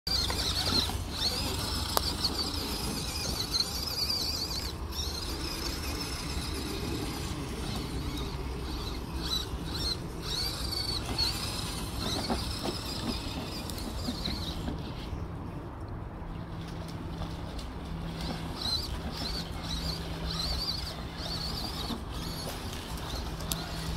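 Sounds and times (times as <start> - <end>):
rc truck motor whine: 0.1 - 15.3, 18.0 - 23.9.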